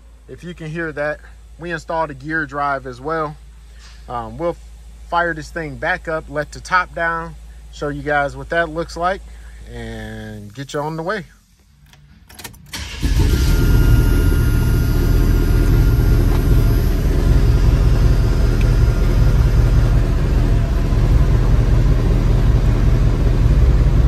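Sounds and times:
car engine cranking and idling: 0:10.4 - 0:24.0.

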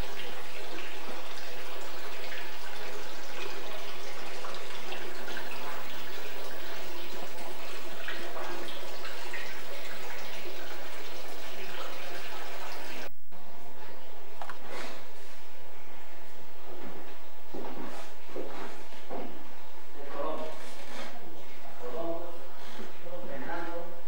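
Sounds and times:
fountain water splashing into basin: 0:00.0 - 0:13.1.

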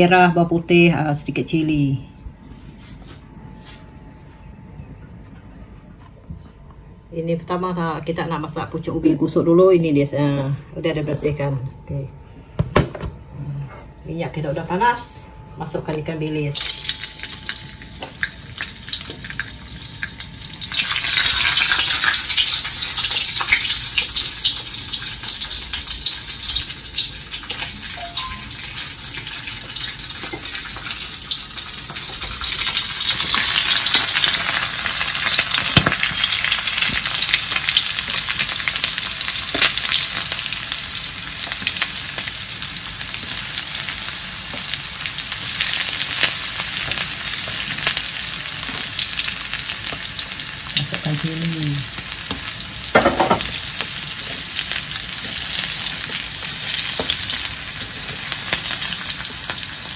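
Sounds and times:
food sizzling in hot oil: 0:16.6 - 0:59.9
knocks on wok: 0:52.9 - 0:53.6.

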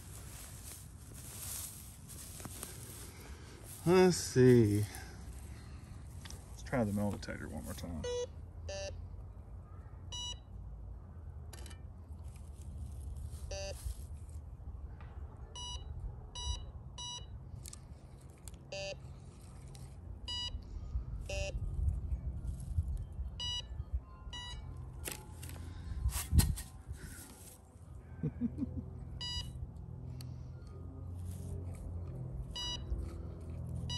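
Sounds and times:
metal detector beeps: 0:08.0 - 0:09.0, 0:10.1 - 0:10.5, 0:13.4 - 0:13.8, 0:15.6 - 0:17.4, 0:18.7 - 0:19.0, 0:20.2 - 0:20.6, 0:21.2 - 0:21.6, 0:23.2 - 0:25.6, 0:29.2 - 0:29.6, 0:32.5 - 0:33.0.

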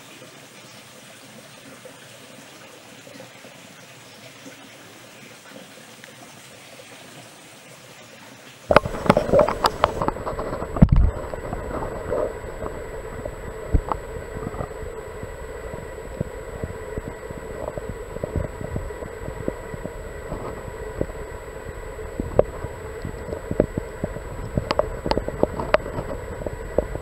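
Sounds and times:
faint steady hiss: 0:00.0 - 0:27.0
underwater stream water gurgling: 0:00.0 - 0:27.0
clicks and knocks underwater: 0:08.7 - 0:27.0
steady hum: 0:08.7 - 0:27.0.

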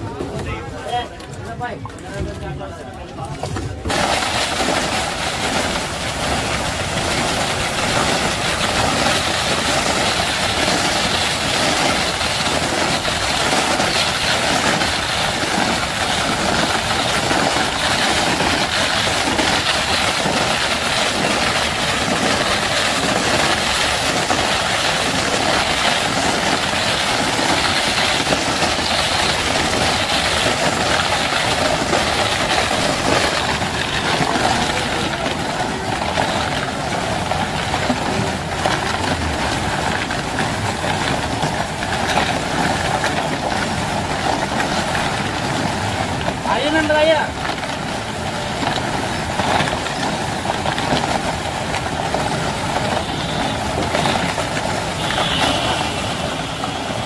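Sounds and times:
ice-cream machine running: 0:02.2 - 0:57.0.

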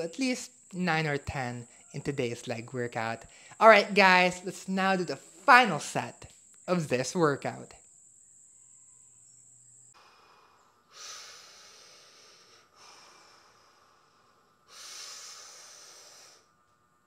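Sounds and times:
man breathing hard: 0:03.3 - 0:03.6, 0:10.0 - 0:16.6.

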